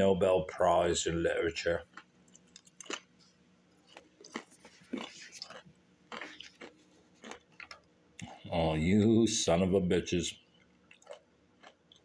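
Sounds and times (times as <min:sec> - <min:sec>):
person chewing crackers: 0:01.8 - 0:08.5, 0:10.6 - 0:12.0.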